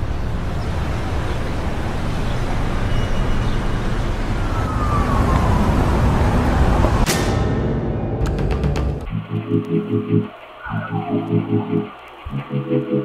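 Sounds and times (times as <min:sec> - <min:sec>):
street traffic rumble: 0:00.0 - 0:13.0
siren wail falling in pitch: 0:04.4 - 0:07.0, 0:09.1 - 0:13.0.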